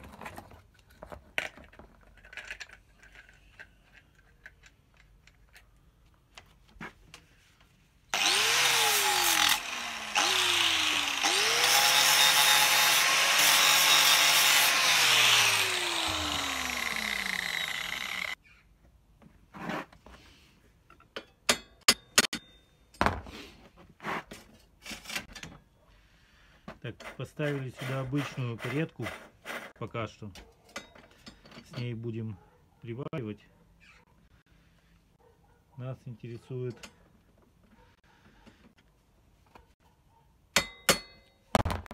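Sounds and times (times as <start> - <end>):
metal parts clinking: 1.4 - 5.7
loud harsh grinding: 8.2 - 18.4
power tool motor spinning: 8.2 - 18.4.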